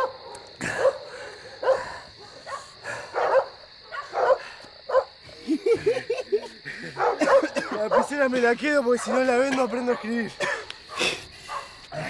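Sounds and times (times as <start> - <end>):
dog barking: 0.0 - 5.2, 7.0 - 8.2, 8.9 - 10.3, 10.9 - 11.8.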